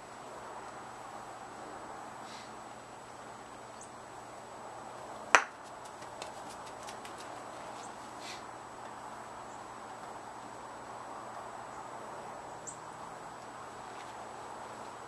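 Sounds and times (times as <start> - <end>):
mallet striking a ball: 5.4 - 5.6.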